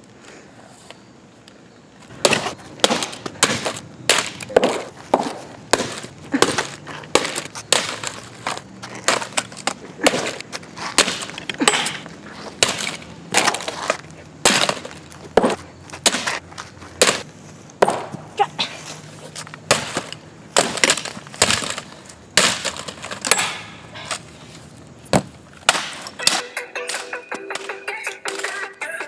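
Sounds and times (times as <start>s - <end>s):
stones smashing plastic laptop: 2.2s - 12.0s, 12.6s - 16.4s, 19.7s - 23.6s.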